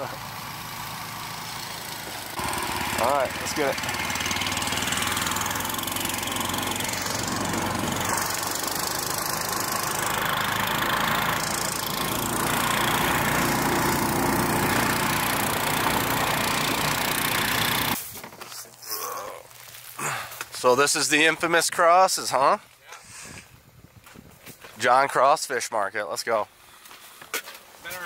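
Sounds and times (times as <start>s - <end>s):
snow vehicle engine running: 0.0s - 18.0s.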